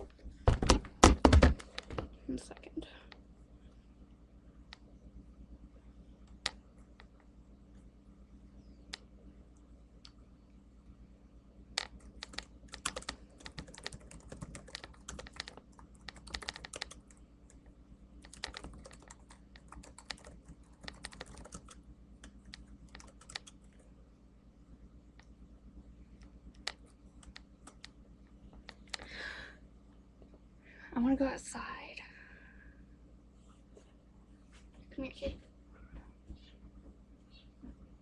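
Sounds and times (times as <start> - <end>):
low steady hum: 0.0 - 38.0
laptop keyboard typing: 11.8 - 23.9, 26.6 - 28.0.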